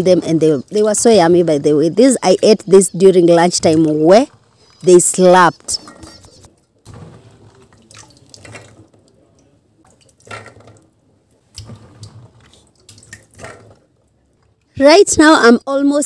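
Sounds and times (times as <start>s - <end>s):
water dripping and splashing: 0.0s - 1.3s, 3.3s - 14.7s.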